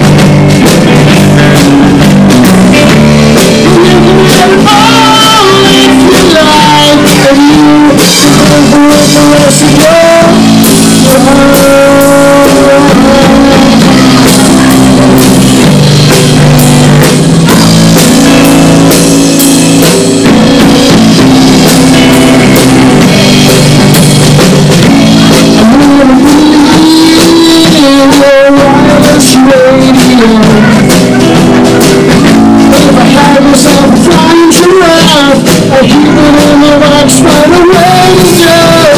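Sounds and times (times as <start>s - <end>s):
bass guitar: 0.0s - 38.9s
drum kit: 0.0s - 38.9s
electric guitar: 0.0s - 38.9s
sung vocals: 0.8s - 15.9s, 25.0s - 38.9s.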